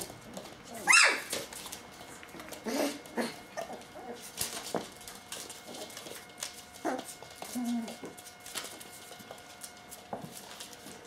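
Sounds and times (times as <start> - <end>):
puppy paws scratching newspaper: 0.0 - 11.0
puppy whimpers: 0.7 - 1.4, 2.6 - 4.3, 6.8 - 8.1.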